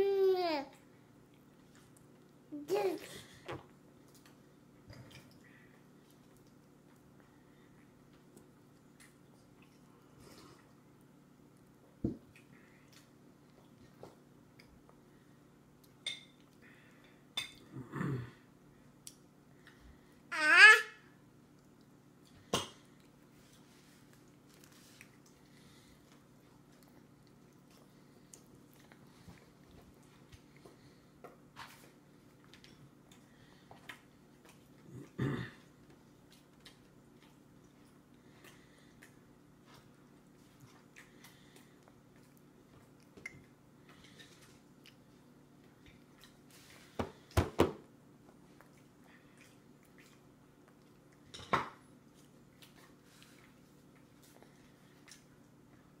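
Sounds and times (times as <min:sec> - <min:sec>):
low steady hum: 0:00.0 - 0:56.0
baby chewing food: 0:21.4 - 0:56.0.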